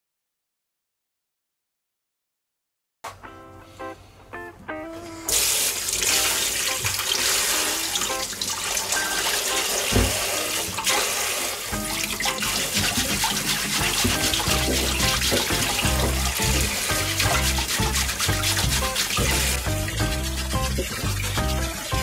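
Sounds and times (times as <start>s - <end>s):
tap running into steel bowl: 9.5s - 11.0s, 11.7s - 22.0s.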